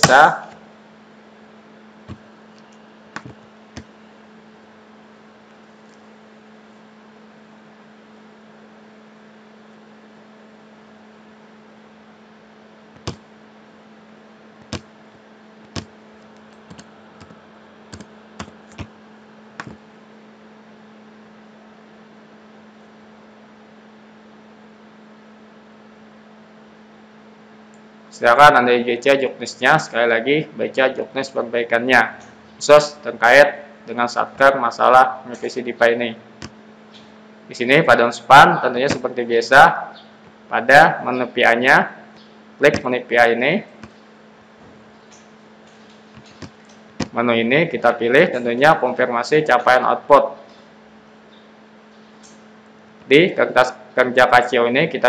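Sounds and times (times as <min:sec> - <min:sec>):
electrical hum: 0:00.0 - 0:55.0
keyboard keystrokes: 0:03.2 - 0:03.9, 0:13.0 - 0:13.2, 0:14.6 - 0:14.8, 0:15.7 - 0:15.9, 0:16.5 - 0:18.9, 0:46.2 - 0:47.2
computer mouse clicks: 0:15.7 - 0:18.9.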